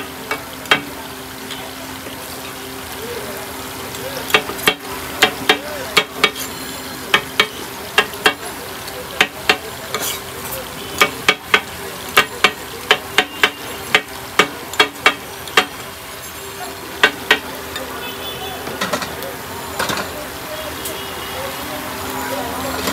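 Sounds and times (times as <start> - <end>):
chicken sizzling on griddle: 0.0 - 22.9
metal spatula scraping griddle: 6.2 - 6.7, 9.9 - 10.6.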